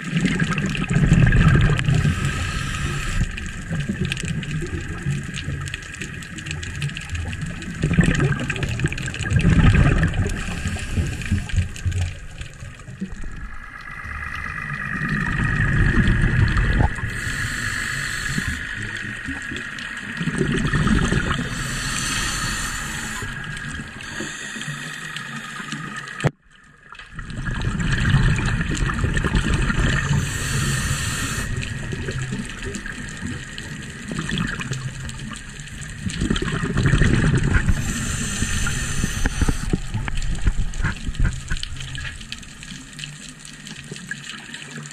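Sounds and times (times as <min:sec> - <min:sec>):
exhaled bubbles rushing: 0:00.0 - 0:26.3, 0:26.9 - 0:44.9
regulator inhale hiss: 0:01.8 - 0:03.6, 0:10.2 - 0:12.2, 0:17.0 - 0:19.2, 0:21.2 - 0:26.2, 0:29.9 - 0:31.8, 0:37.5 - 0:40.1.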